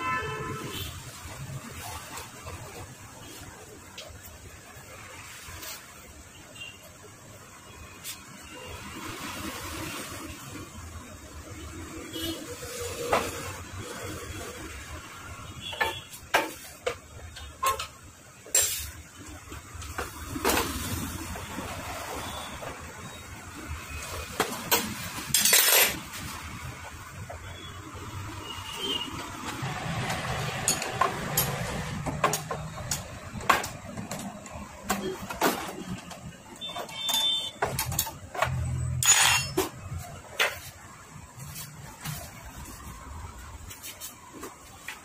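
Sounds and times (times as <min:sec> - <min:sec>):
metal tools clinking: 0:25.3 - 0:26.0, 0:36.8 - 0:39.7
tools clicking and knocking on metal: 0:29.4 - 0:40.7.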